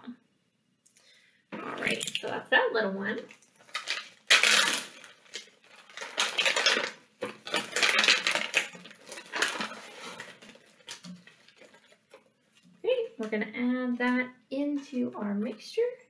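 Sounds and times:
plastic bag crinkling: 1.6 - 2.4, 3.2 - 12.6.

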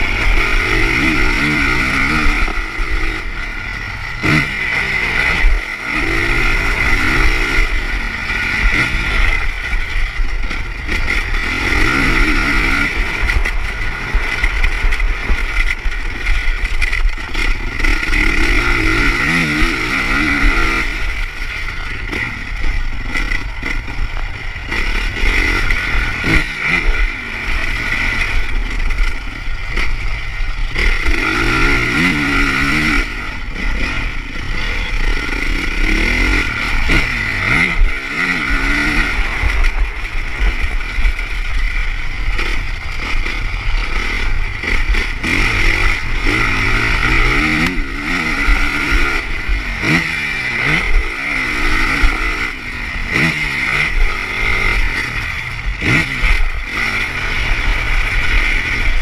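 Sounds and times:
motocross engine revving: 0.0 - 59.0.

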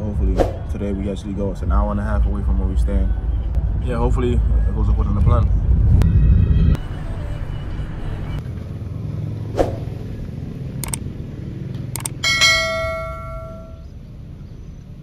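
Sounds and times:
low steady rumble: 0.0 - 8.5, 11.9 - 15.0
short whoosh: 0.3 - 0.8, 9.6 - 10.0
bell notification chime: 12.2 - 13.9.

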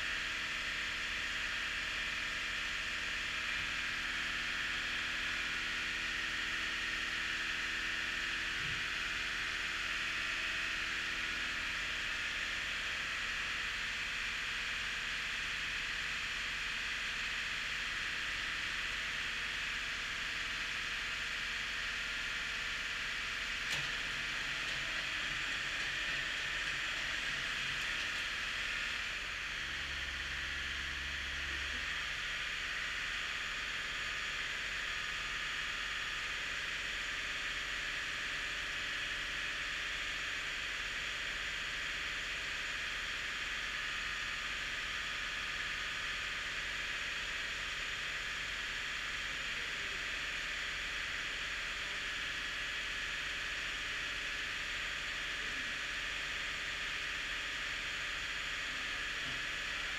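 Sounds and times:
diesel tractor engine idling: 8.4 - 38.7.

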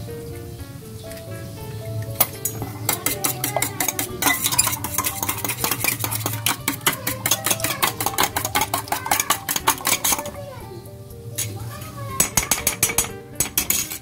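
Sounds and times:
egg sloshing: 2.1 - 10.8
whisk clinking in metal pot: 2.2 - 10.4, 12.2 - 14.0.

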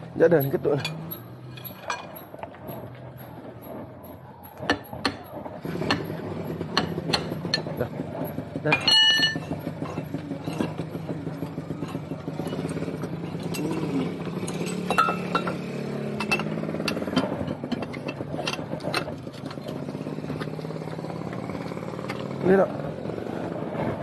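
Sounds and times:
engine running: 0.0 - 24.0
metallic clinks and knocks: 0.1 - 22.3
ringing metal strike: 8.8 - 9.5.

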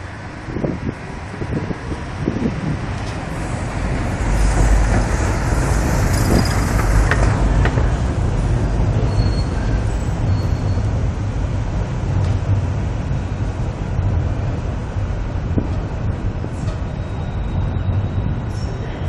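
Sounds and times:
traffic low rumble: 0.0 - 19.0.

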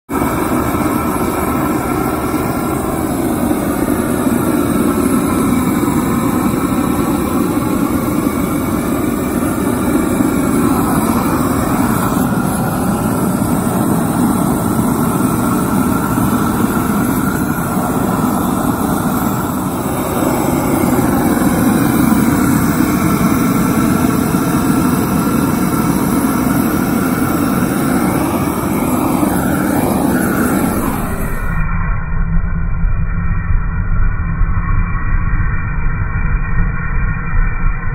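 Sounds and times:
blowtorch flame rushing: 0.1 - 31.6.

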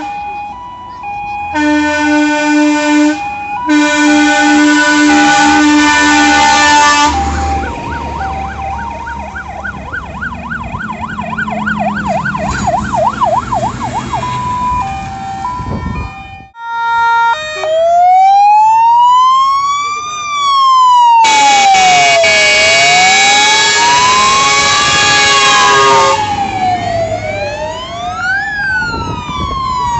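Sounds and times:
loud fire engine horn: 0.0 - 9.4, 13.8 - 18.3, 21.0 - 28.3
fire engine sirens: 0.0 - 29.9.

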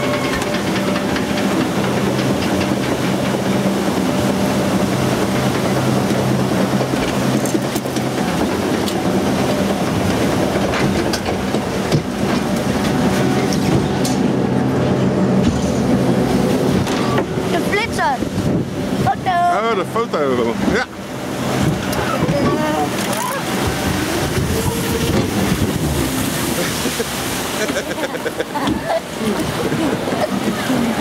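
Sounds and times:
rattle and clatter: 0.0 - 3.8
lift mechanism humming: 0.0 - 17.5.

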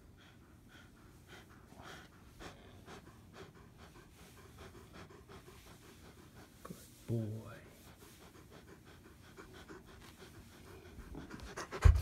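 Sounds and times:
dog huffing and snorting: 8.0 - 12.0.

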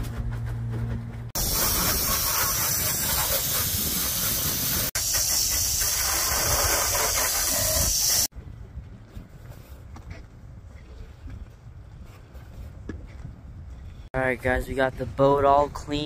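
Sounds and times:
hose spraying water on deck: 1.4 - 8.3.

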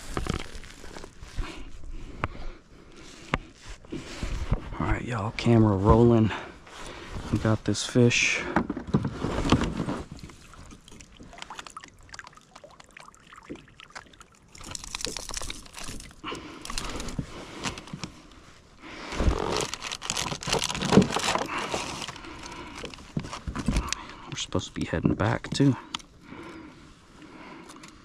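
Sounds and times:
gear scraping and rustling: 0.0 - 2.0, 2.9 - 11.6, 14.6 - 24.0.

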